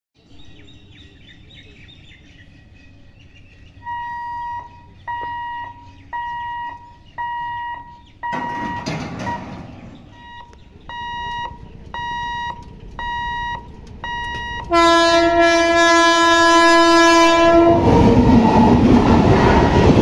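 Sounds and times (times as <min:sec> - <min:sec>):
birds chirping: 0:00.2 - 0:17.6
level crossing warning beeps: 0:03.8 - 0:15.3.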